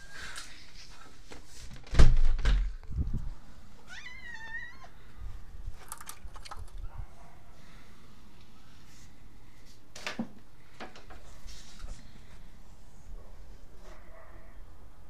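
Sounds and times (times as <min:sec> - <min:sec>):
loud knock with rustling: 0:01.7 - 0:02.8
cat meowing: 0:03.8 - 0:05.0.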